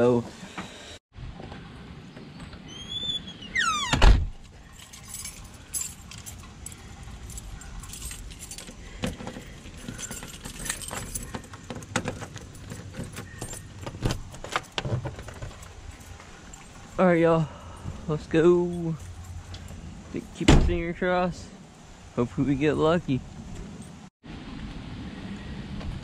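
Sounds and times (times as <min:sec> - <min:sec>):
door squeaking and shutting: 0:02.4 - 0:04.4
keys jangling: 0:04.4 - 0:17.8, 0:18.6 - 0:20.4.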